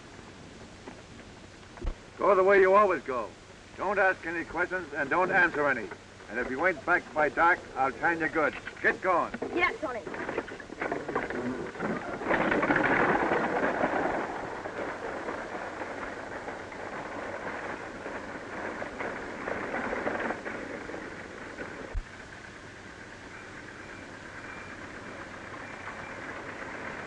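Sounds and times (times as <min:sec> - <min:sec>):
wagon wheels rattling on dirt: 0:02.2 - 0:27.0
hoof clatter: 0:05.2 - 0:22.1, 0:23.2 - 0:27.0.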